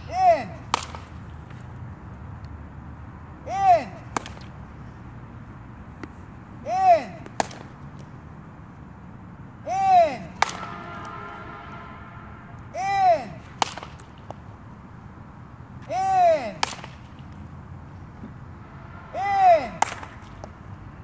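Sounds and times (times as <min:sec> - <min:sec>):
bat cracking ball: 0:00.6 - 0:01.6, 0:04.0 - 0:04.6, 0:07.2 - 0:08.1, 0:10.3 - 0:11.2, 0:13.4 - 0:14.6, 0:16.5 - 0:17.5, 0:19.6 - 0:20.7
bat swing whistle: 0:10.4 - 0:12.7, 0:18.6 - 0:20.6.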